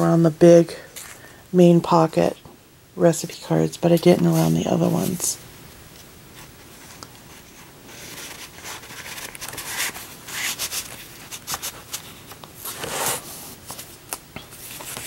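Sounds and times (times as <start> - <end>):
paper rustling and sliding: 6.4 - 15.0.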